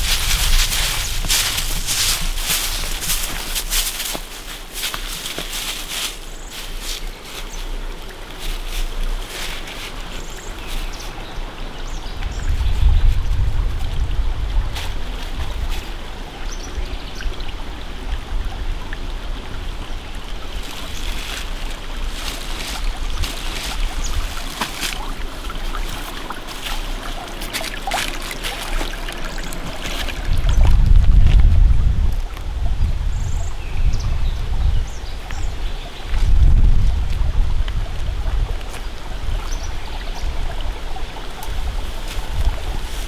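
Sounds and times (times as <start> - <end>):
dry leaves and twigs crackling: 0.0 - 11.4, 20.5 - 32.6, 41.2 - 43.0
stream trickling over stones: 0.0 - 43.0.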